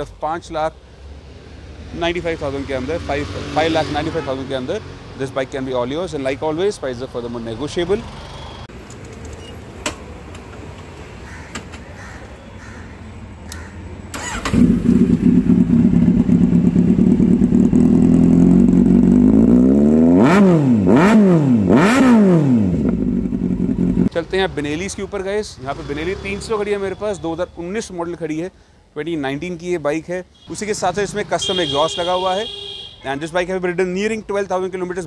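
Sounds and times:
motorcycle engine starting and idling: 0:14.1 - 0:24.8
engine revving in blips: 0:17.4 - 0:24.1.

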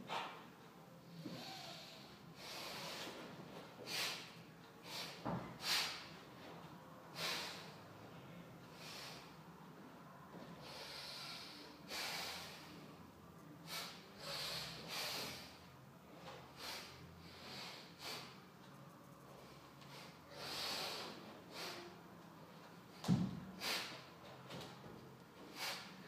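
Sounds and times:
man exhaling sharply through nose: 0:03.9 - 0:06.1, 0:07.2 - 0:07.8, 0:10.6 - 0:12.8, 0:13.7 - 0:15.6, 0:16.6 - 0:18.4, 0:19.9 - 0:21.9, 0:23.6 - 0:24.1, 0:25.6 - 0:26.0.

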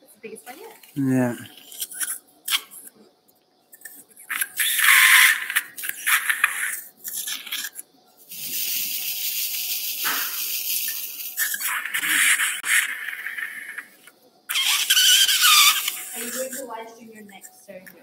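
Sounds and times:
steady hiss: 0:03.8 - 0:18.0.

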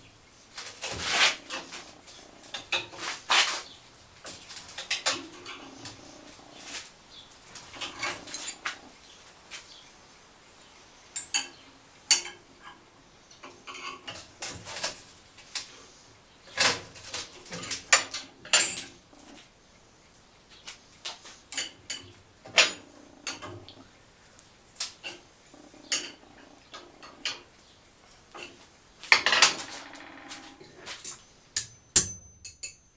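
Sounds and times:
metal tools clinking on steel: 0:11.2 - 0:12.4, 0:17.5 - 0:19.0, 0:29.1 - 0:32.9.

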